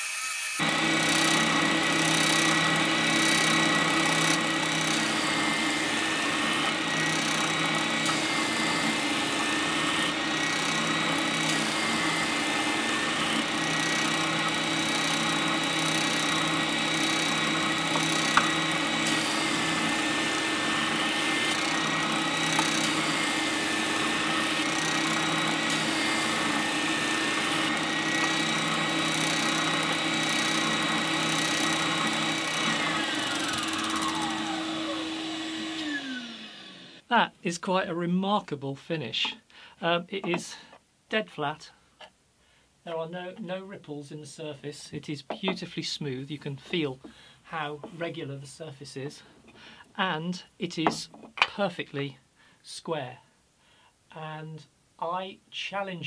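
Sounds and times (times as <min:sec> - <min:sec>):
spindle sander sanding wood: 0:00.6 - 0:37.0.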